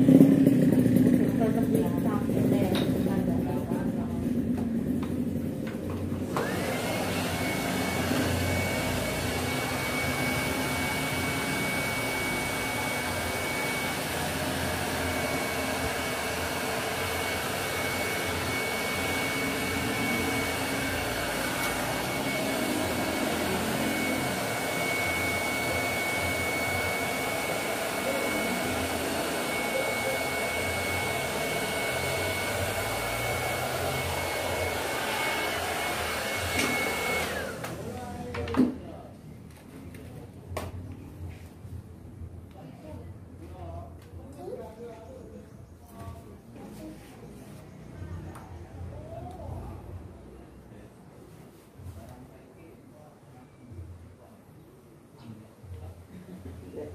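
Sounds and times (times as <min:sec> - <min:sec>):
hair dryer running: 0:00.0 - 0:38.5.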